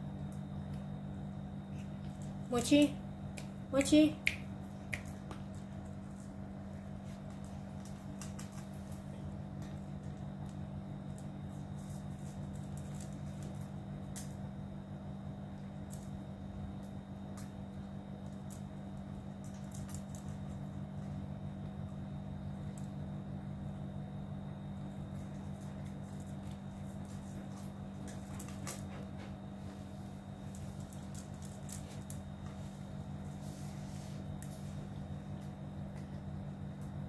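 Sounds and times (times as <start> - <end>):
steady low hum: 0.0 - 37.0
cats crunching kibble in metal bowls: 4.5 - 14.6, 15.5 - 23.6, 24.8 - 29.2, 30.3 - 33.5.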